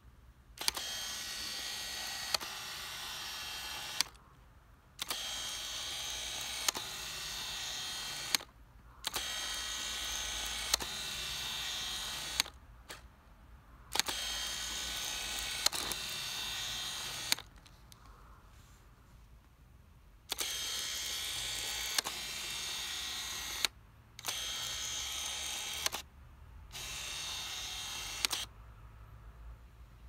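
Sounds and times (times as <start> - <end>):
lens autofocus motor whirring: 0.6 - 4.3, 5.0 - 13.0, 13.9 - 17.7, 20.2 - 26.1, 26.7 - 28.5
sharp lens clicks: 0.6 - 4.4, 5.0 - 13.1, 13.9 - 18.2, 20.2 - 26.1, 26.7 - 28.5.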